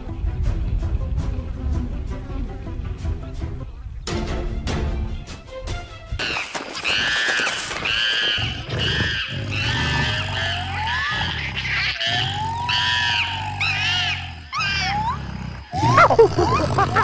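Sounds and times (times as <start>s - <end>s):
monkeys screeching: 6.2s - 17.0s.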